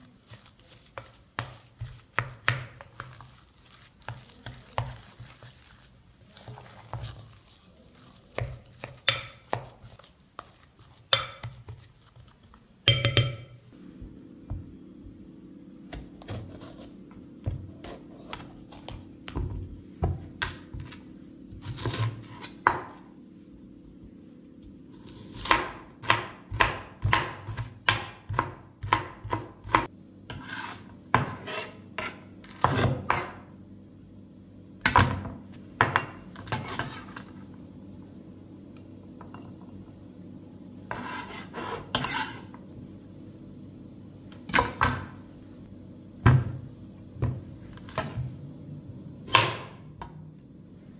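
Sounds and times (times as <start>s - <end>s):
knife chopping on plastic board: 0.3s - 3.3s, 8.3s - 11.9s, 25.3s - 33.3s.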